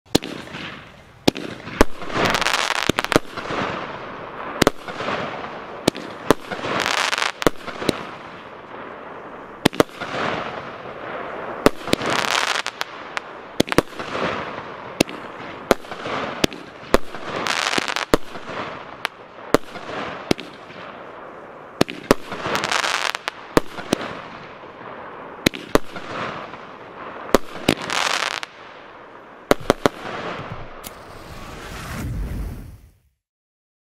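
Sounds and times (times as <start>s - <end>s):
hissing of burning stars: 30.8s - 33.1s.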